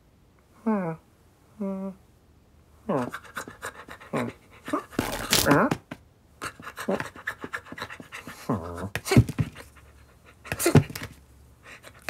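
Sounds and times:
cartoon puppy panting: 2.9 - 5.0, 6.4 - 11.0, 11.6 - 12.0.

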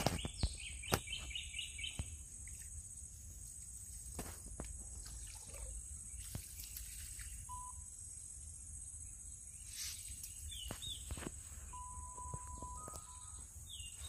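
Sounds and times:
water splashing: 4.4 - 7.5.

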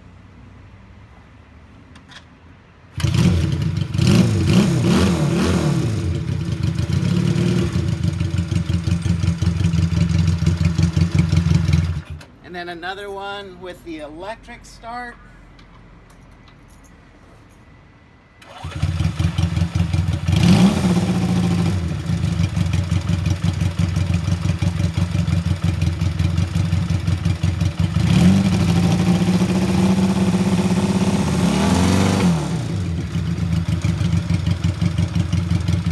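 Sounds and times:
motorcycle engine idling and revving: 2.9 - 12.3, 18.4 - 35.9
electric starter cranking: 18.4 - 20.4.

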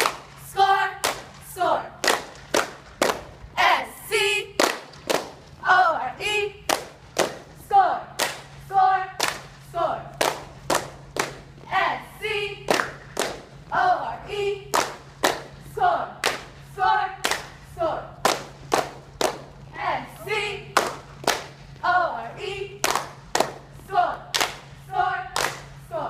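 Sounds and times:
hand claps and stomps: 12.7 - 13.5, 18.2 - 19.5.

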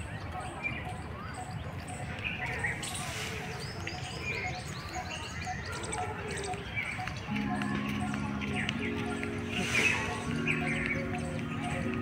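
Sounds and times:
birds chirping and calling: 0.0 - 12.0.

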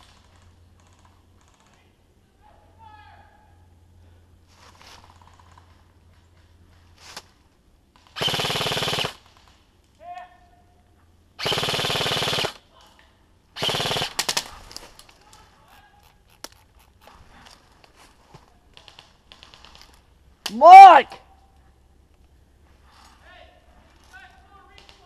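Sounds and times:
airsoft rifle full-auto bursts: 8.2 - 9.5, 11.4 - 12.6, 13.6 - 14.6.

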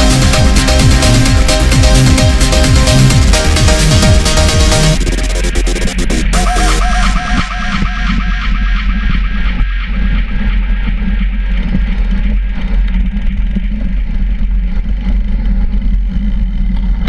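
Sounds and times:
electronic music: 0.0 - 13.7
bike tyres rumbling on gravel: 11.6 - 17.0.

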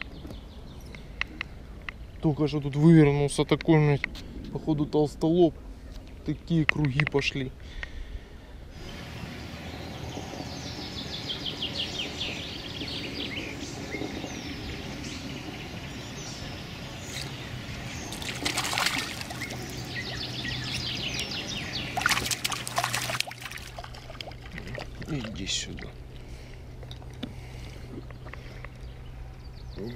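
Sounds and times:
songbirds singing: 0.0 - 4.2, 5.8 - 29.9
fish splashing water: 18.0 - 26.2.

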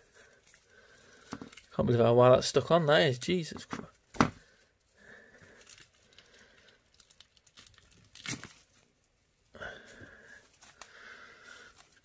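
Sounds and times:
plant roots crackling and tearing: 0.0 - 2.3, 5.2 - 9.2, 10.3 - 12.0.

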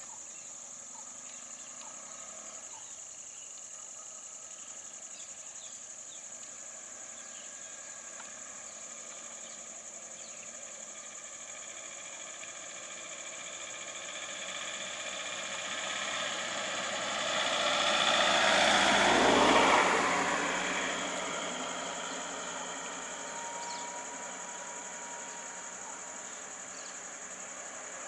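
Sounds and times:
vehicle driving past: 6.6 - 28.0.

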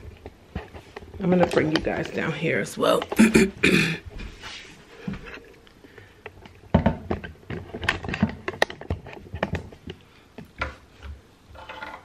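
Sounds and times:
plastic bottles clicking and knocking: 5.2 - 12.0.

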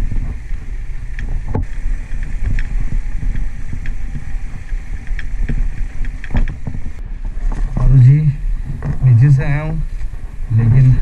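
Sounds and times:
stones knocking and rattling: 0.0 - 8.1
motorcycle engine running: 0.0 - 8.2.

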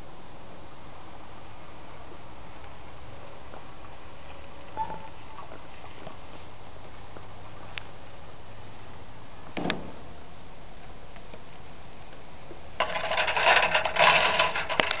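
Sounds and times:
faint steady hiss: 0.0 - 12.8
rustling and scraping on microphone: 4.2 - 7.8, 12.8 - 15.0.

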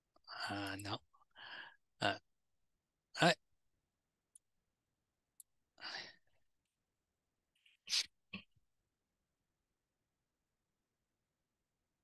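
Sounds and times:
man breathing and sighing: 5.8 - 6.4.

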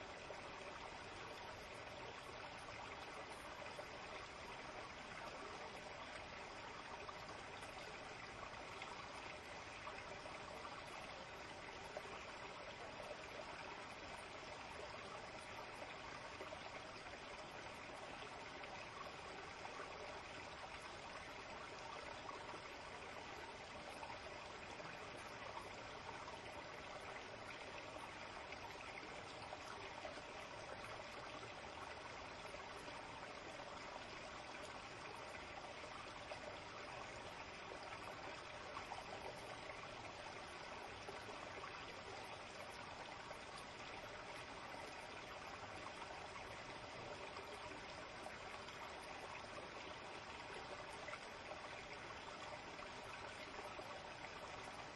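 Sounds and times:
stream trickling: 0.0 - 54.9.

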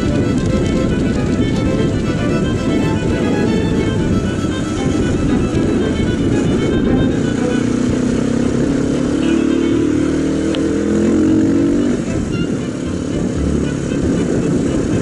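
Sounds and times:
motorcycle engine running: 0.0 - 15.0
road and wind rumble: 0.0 - 15.0.

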